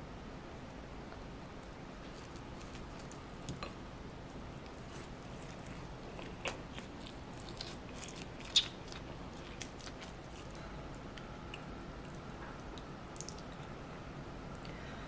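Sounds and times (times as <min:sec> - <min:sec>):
low room hiss: 0:00.0 - 0:15.0
chewing crispy pancake: 0:04.5 - 0:12.2.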